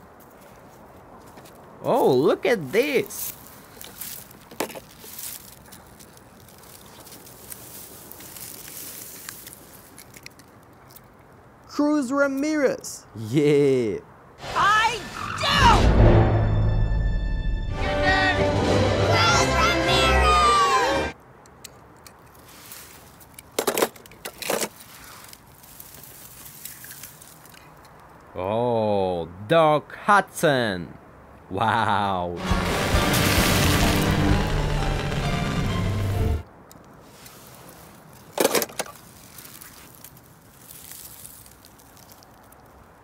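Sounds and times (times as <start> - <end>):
dry leaves rustling underfoot: 0.0 - 11.2, 22.2 - 28.3, 37.0 - 43.0.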